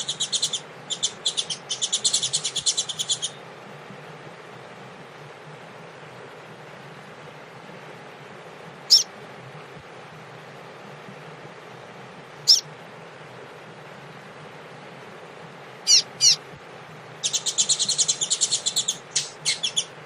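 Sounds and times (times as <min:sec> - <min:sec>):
bird singing trills: 0:00.0 - 0:03.4, 0:08.9 - 0:09.1, 0:12.4 - 0:12.7, 0:15.8 - 0:16.4, 0:17.2 - 0:20.0
steady hiss: 0:00.0 - 0:20.0.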